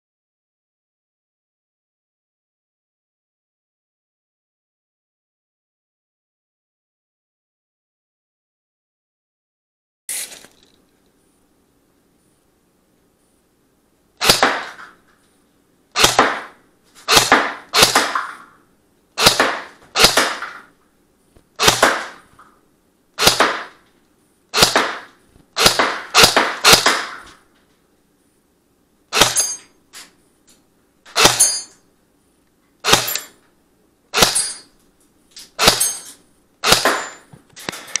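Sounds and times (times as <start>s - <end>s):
airsoft rifle shots: 14.2s - 15.0s, 15.9s - 18.5s, 19.2s - 20.7s, 21.6s - 22.3s, 23.2s - 23.8s, 24.5s - 27.4s, 29.1s - 29.6s, 31.1s - 31.7s, 32.8s - 33.4s, 34.1s - 34.7s, 35.6s - 37.3s.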